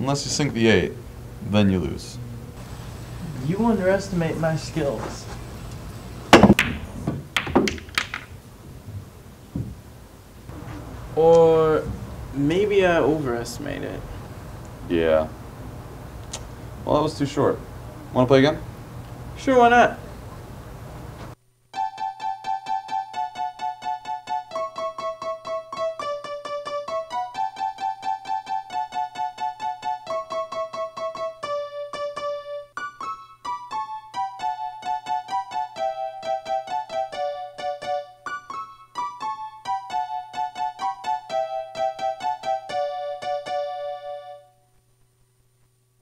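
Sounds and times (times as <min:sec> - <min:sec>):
faint low hum: 0:00.0 - 0:21.7.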